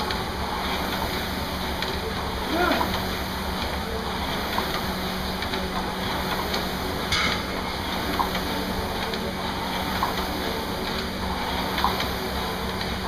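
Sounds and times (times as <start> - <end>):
rowing machine flywheel whirring: 0.0 - 13.0.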